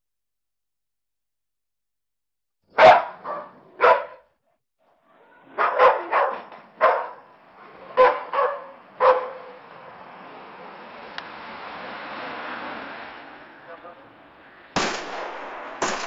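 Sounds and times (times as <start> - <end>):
dog barking: 2.7 - 4.3, 5.3 - 9.6.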